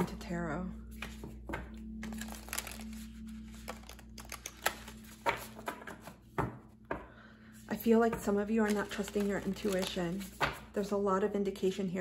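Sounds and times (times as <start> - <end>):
cards being shuffled: 0.9 - 6.5, 8.1 - 10.7.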